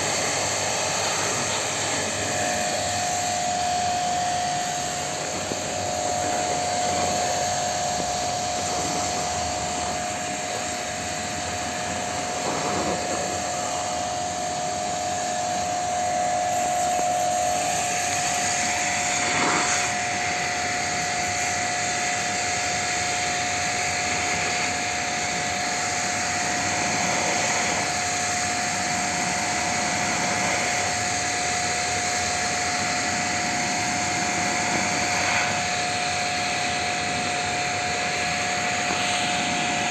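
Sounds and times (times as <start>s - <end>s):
pressure washer water jet hissing: 0.0s - 39.9s.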